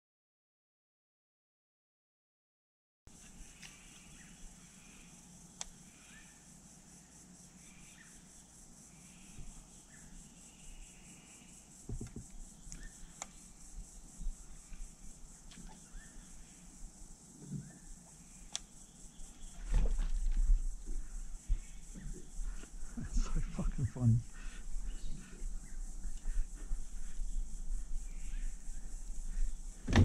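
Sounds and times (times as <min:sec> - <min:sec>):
high insect drone: 0:03.1 - 0:30.0
bird chirps: 0:15.6 - 0:16.4.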